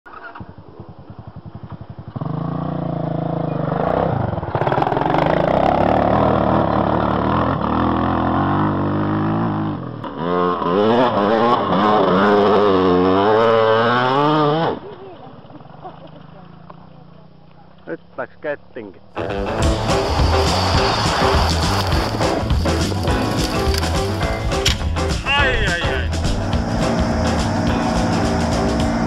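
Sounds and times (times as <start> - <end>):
wheels spinning on gravel: 0.1 - 2.6, 19.2 - 24.8
atv engine revving: 0.1 - 15.0, 19.1 - 29.0.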